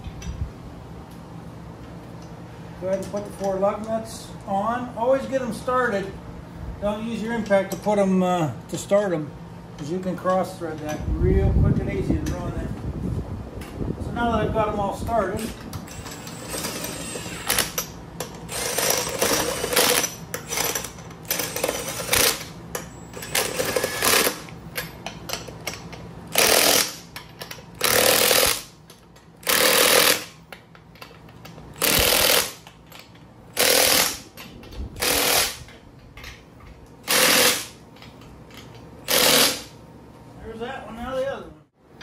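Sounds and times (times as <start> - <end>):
impact wrench spinning and hammering: 15.4 - 36.4, 37.0 - 39.8.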